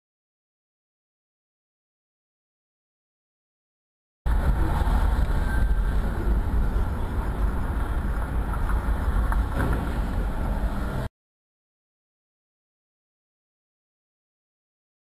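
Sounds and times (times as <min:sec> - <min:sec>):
car road rumble from inside: 0:04.3 - 0:11.1.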